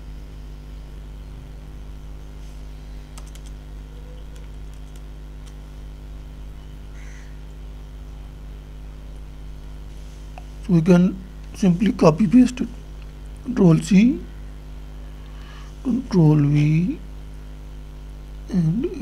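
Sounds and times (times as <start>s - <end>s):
low electrical hum: 0.0s - 19.0s
keyboard keystrokes: 3.2s - 3.6s, 4.3s - 5.6s.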